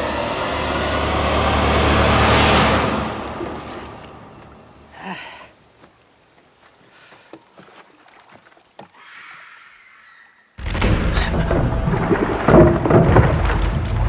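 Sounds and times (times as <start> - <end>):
loud deep boom: 10.6 - 14.0.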